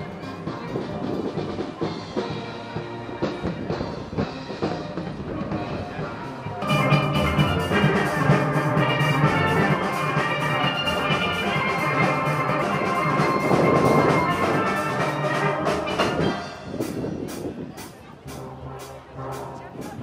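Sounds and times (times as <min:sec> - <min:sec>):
steel band playing: 0:00.0 - 0:20.0.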